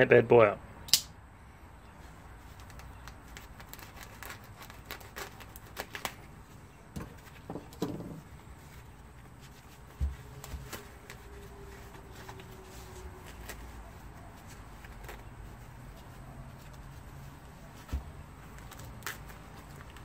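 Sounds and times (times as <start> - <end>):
plastic and foam crinkling: 2.0 - 20.0
knife slitting plastic wrap: 3.5 - 6.2.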